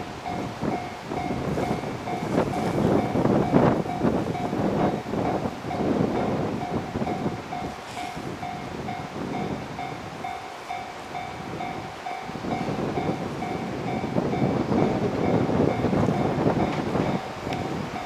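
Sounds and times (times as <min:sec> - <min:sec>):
train wheels clattering on rails: 0:00.0 - 0:18.0.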